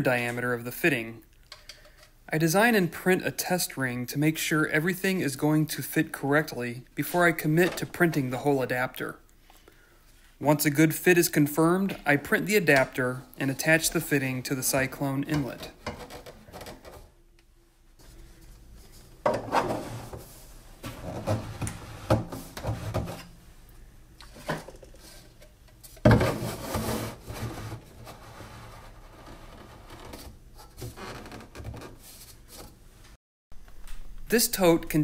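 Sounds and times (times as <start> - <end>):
plastic rubbing and scraping: 15.4 - 17.1, 18.4 - 23.3, 25.2 - 32.8.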